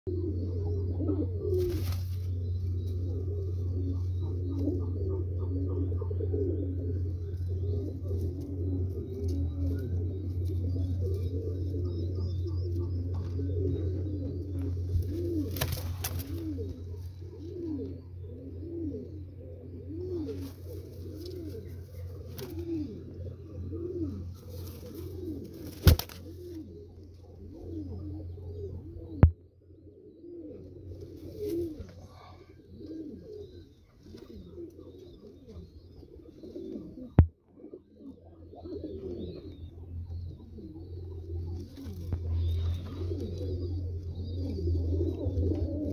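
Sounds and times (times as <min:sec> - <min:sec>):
pigeons cooing: 0:00.1 - 0:45.9
steady low hum: 0:00.1 - 0:45.9.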